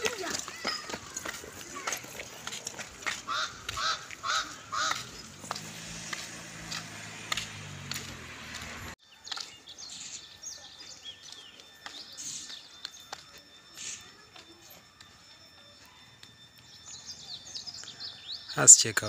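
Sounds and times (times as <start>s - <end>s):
bird honking calls: 3.2s - 5.4s
small birds chirping: 7.5s - 19.0s.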